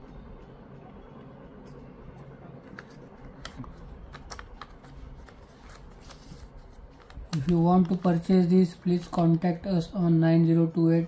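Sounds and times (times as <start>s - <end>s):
paper card crinkling: 2.6s - 8.4s.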